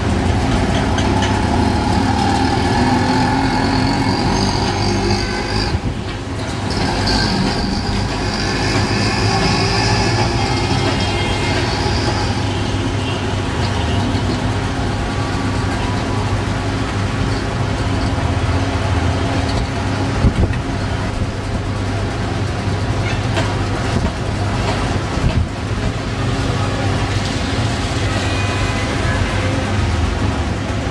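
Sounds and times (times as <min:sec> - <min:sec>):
low rumble of street traffic: 0:00.0 - 0:30.9
wind: 0:00.0 - 0:30.9.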